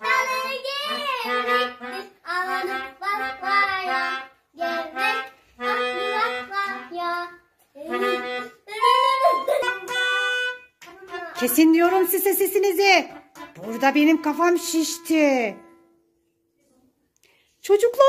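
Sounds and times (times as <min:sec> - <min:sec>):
melodica playing held notes: 0:00.0 - 0:07.0, 0:07.8 - 0:16.0.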